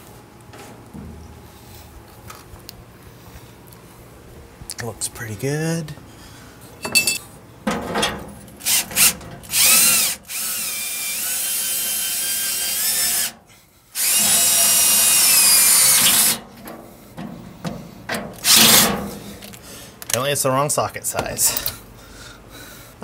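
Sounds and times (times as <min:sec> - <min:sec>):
cordless drill motor whine: 0:08.6 - 0:13.4, 0:14.0 - 0:16.4.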